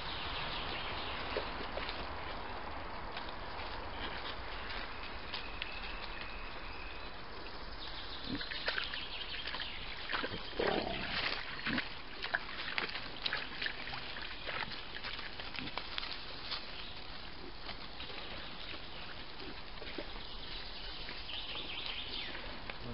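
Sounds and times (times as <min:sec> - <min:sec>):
squelching and splashing in mud: 0:08.4 - 0:22.9
boars grunting: 0:10.3 - 0:11.9.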